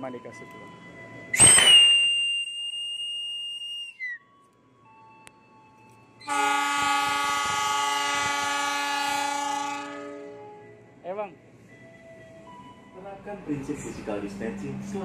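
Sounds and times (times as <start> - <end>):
whistle long blast: 1.3 - 4.3, 6.2 - 10.6
locomotive horn blast: 6.2 - 10.9.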